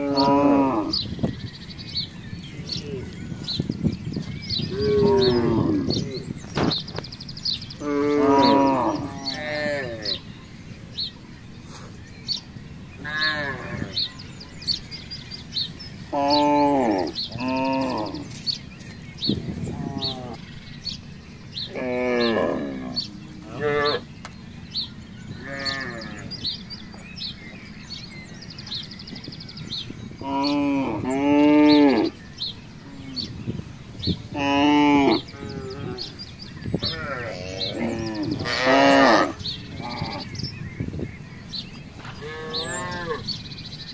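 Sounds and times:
cattle mooing: 0.0 - 1.0, 4.7 - 6.2, 7.8 - 10.2, 16.1 - 18.3, 21.7 - 24.0, 25.4 - 26.4, 36.8 - 40.3, 42.2 - 43.3.

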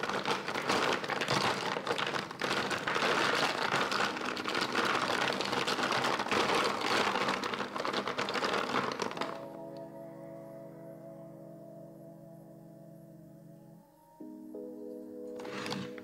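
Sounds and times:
plastic vials clattering: 0.0 - 9.5.

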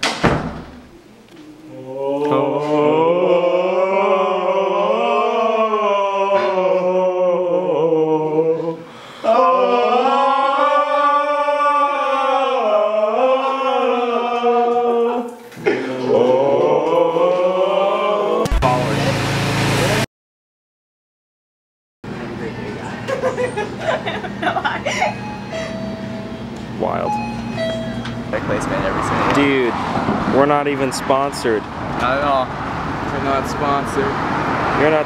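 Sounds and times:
voices singing a cappella: 1.0 - 19.1.

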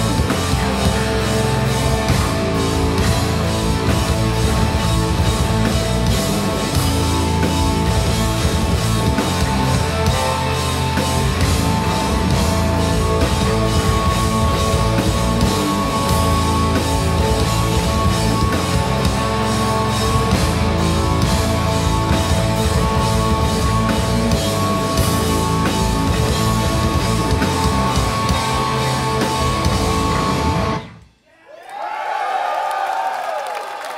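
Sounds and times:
drum kit steady beat: 0.0 - 30.8
distorted electric guitars: 0.0 - 31.1.

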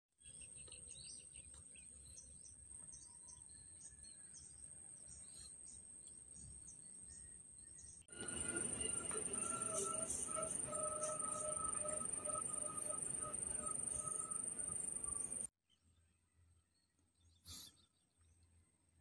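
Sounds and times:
bird chirps: 0.2 - 15.5, 17.2 - 18.3
high insect trill: 8.1 - 15.5
low wind rumble: 8.1 - 15.5.

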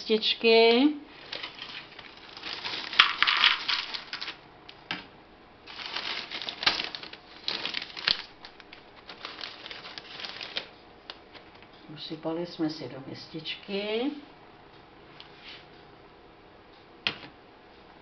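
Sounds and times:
plastic bag crinkling: 1.1 - 4.4, 5.7 - 11.4
snacks poured into plastic bowl: 1.2 - 4.4.

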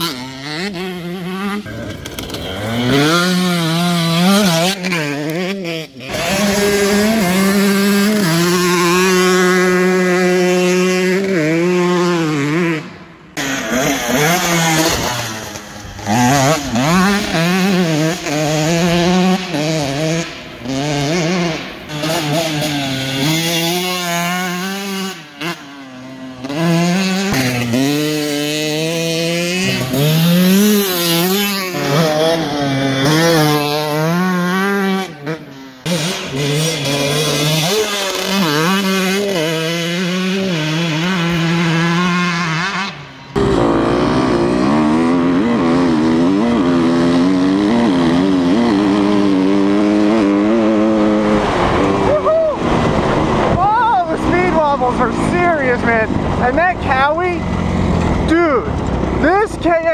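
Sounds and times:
dirt bike engines revving: 0.0 - 59.9.

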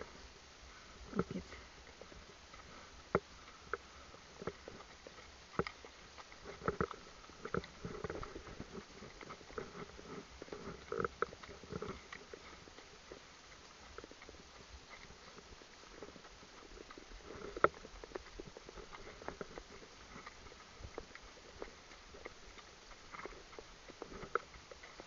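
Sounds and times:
horse hooves on dirt track: 0.0 - 25.0.

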